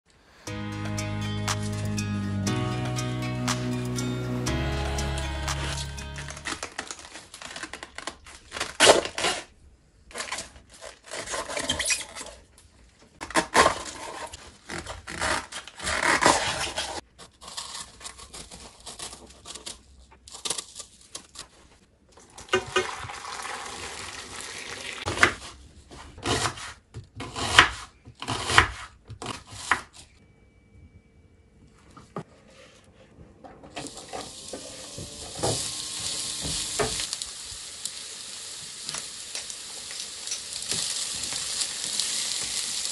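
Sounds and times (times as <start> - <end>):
cabbage leaves tearing: 6.2 - 12.4.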